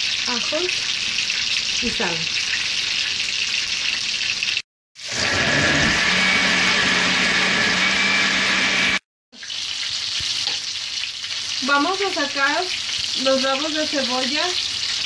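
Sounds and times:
blender motor running: 5.0s - 9.0s.

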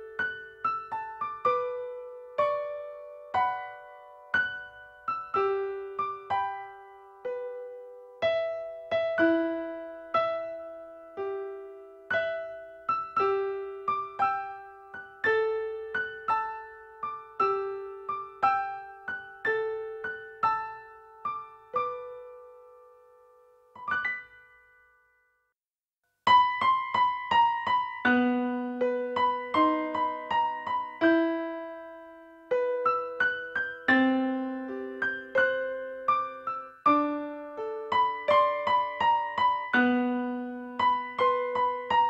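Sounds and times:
bell-like electric piano lullaby: 26.5s - 42.0s.

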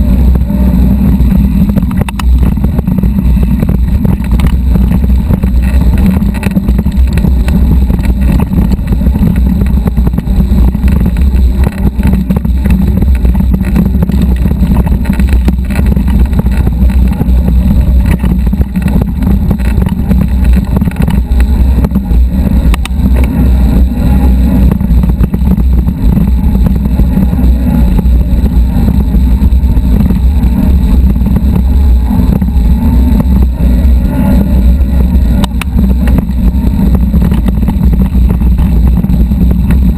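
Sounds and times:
wind buffeting and frame vibration: 0.0s - 39.9s.

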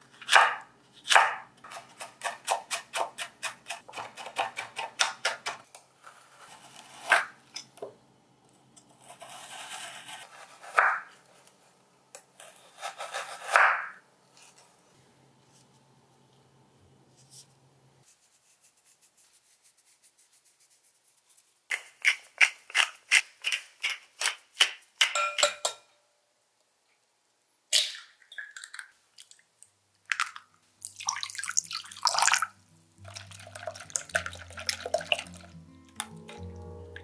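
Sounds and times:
soft background music: 31.1s - 37.0s.

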